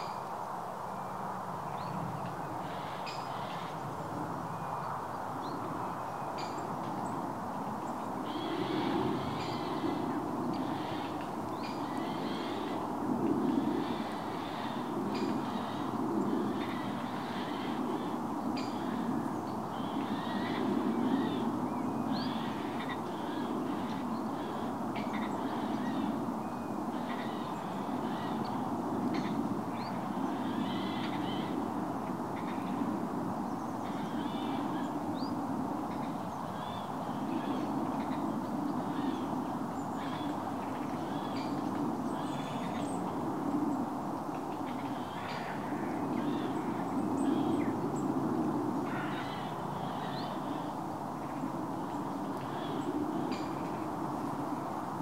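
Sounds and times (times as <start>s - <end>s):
birds calling: 7.8s - 31.6s, 48.8s - 53.6s.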